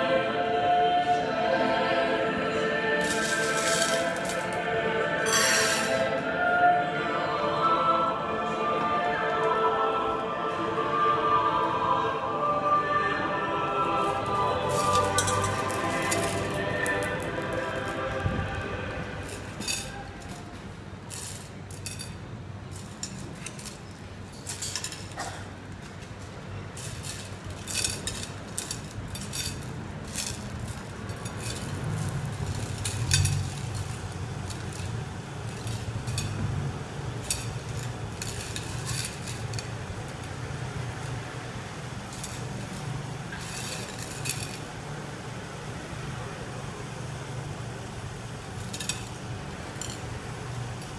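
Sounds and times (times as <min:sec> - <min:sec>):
glass pebbles clinking: 0:03.0 - 0:04.6, 0:05.2 - 0:06.0, 0:14.3 - 0:18.0, 0:19.2 - 0:25.4, 0:26.8 - 0:41.2, 0:42.0 - 0:44.7, 0:48.5 - 0:50.2
low steady rumble: 0:13.2 - 0:50.9.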